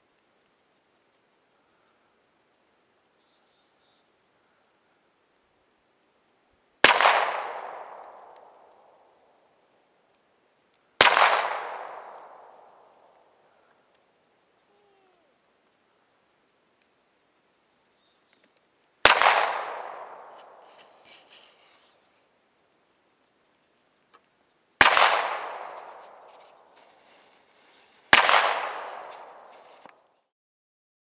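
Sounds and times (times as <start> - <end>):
gunshots with echo: 6.8 - 9.0, 11.0 - 13.1, 19.0 - 21.0, 24.8 - 26.8, 28.1 - 29.8.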